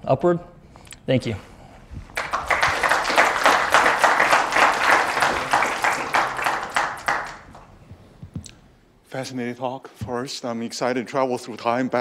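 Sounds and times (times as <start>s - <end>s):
audience applauding: 2.1s - 7.8s.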